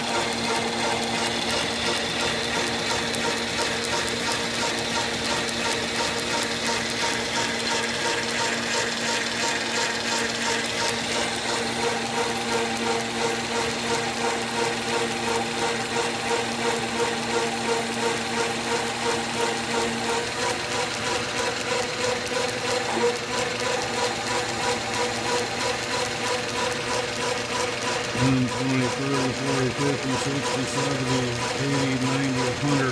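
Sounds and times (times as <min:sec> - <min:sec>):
metal lathe whirring: 0:00.0 - 0:32.9.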